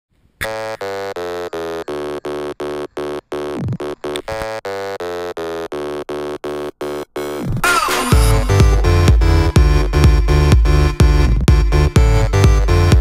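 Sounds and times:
buzzy synth chord stabs: 0:00.4 - 0:13.0.

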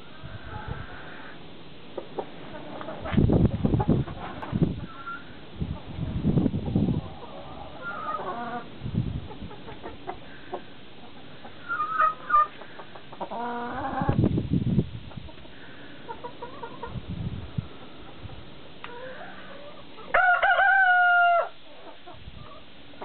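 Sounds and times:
chickens clucking and calling: 0:00.0 - 0:23.0.

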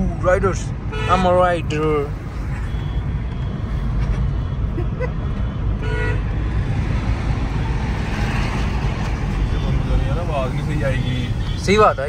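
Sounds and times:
vehicle engine and road rumble: 0:00.0 - 0:12.0
car horn toot: 0:00.9 - 0:01.5, 0:02.6 - 0:03.6, 0:05.8 - 0:06.4, 0:09.4 - 0:12.0.

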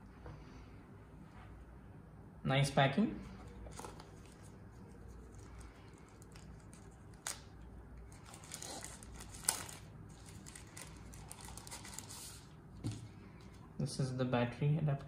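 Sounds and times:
wrap rustling and crinkling: 0:03.5 - 0:12.5.

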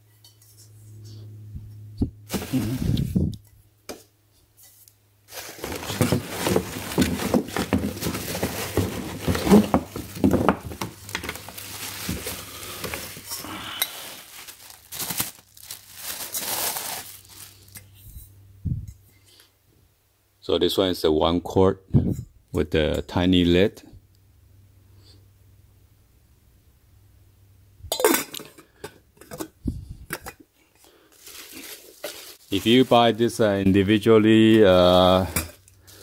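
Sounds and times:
plastic bag crinkling: 0:02.3 - 0:03.1, 0:05.3 - 0:17.8, 0:31.1 - 0:33.6.

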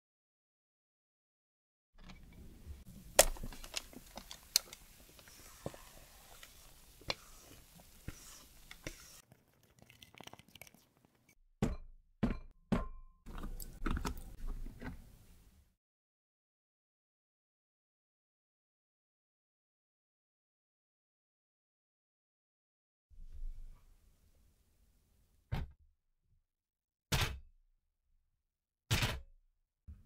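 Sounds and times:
bowl and spatula clicks and scrapes: 0:03.2 - 0:11.4
cake batter pouring: 0:03.9 - 0:11.2.

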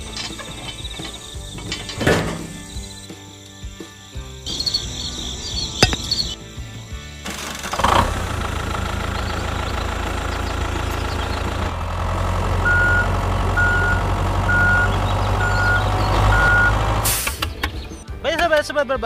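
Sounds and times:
tractor engine running: 0:00.0 - 0:18.0
reversing alarm beeping: 0:12.6 - 0:16.8.

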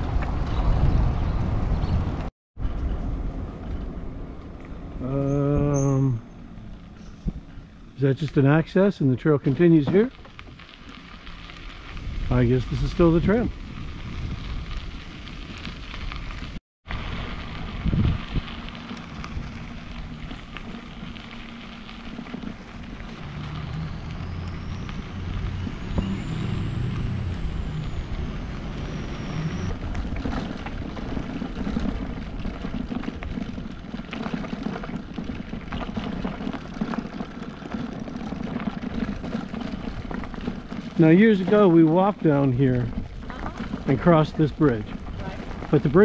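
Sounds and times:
wind buffeting microphone: 0:00.0 - 0:07.6, 0:11.6 - 0:21.2
tyres rolling over gravel: 0:02.7 - 0:46.0.

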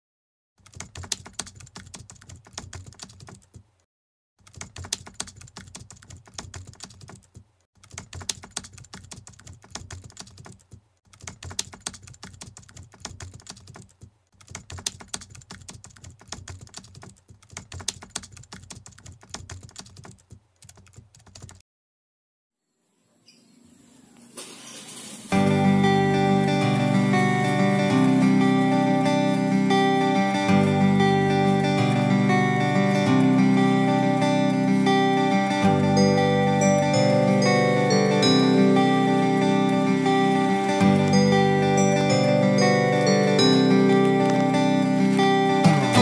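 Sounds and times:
computer keyboard typing: 0:00.6 - 0:03.6, 0:04.4 - 0:21.6.

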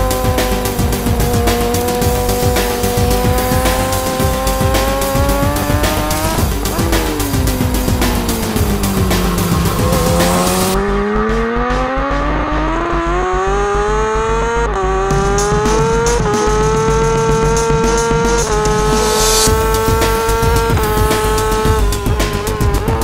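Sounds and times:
motorcycle engine accelerating hard: 0:00.0 - 0:23.0.

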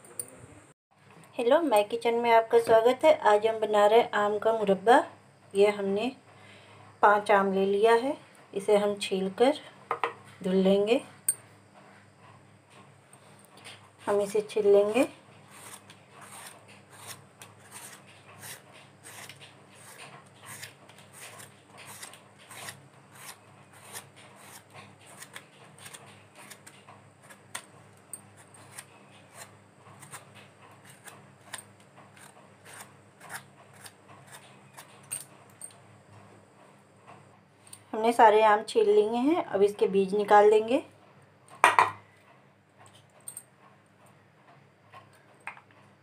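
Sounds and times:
blade scraping mango skin: 0:14.1 - 0:27.7, 0:28.4 - 0:35.0.

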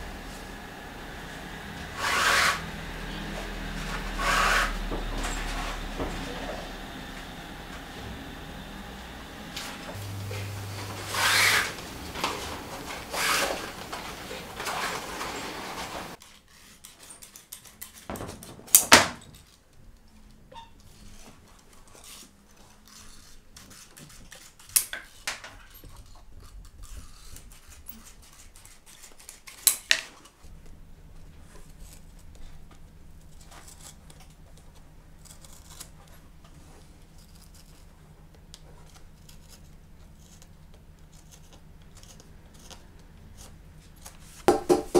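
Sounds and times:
low steady hum: 0:00.0 - 0:16.2
scratchy rasping of hand tools: 0:01.7 - 0:07.1, 0:10.9 - 0:17.7
small clicks and scrapes: 0:11.0 - 0:18.1, 0:19.3 - 0:44.4.

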